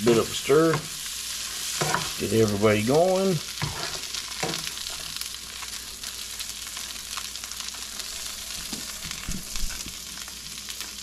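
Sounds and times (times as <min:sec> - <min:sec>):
spatula stirring in pan: 0:00.0 - 0:06.9
food sizzling in a frying pan: 0:00.0 - 0:11.0.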